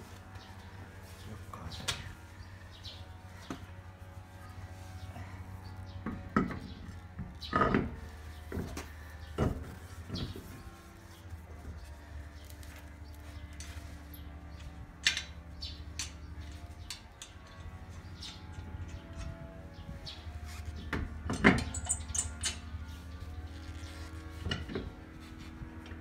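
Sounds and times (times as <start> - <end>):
low steady hum: 0.0 - 26.0
small metallic clicks and knocks: 14.6 - 19.6, 20.9 - 22.8.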